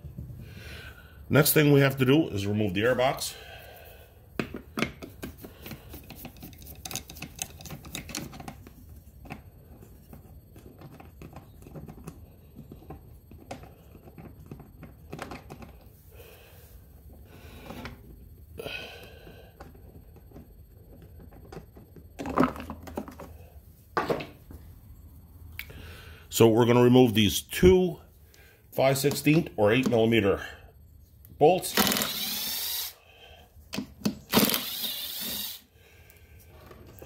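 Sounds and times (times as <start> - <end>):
plastic parts knocking: 19.6 - 23.3.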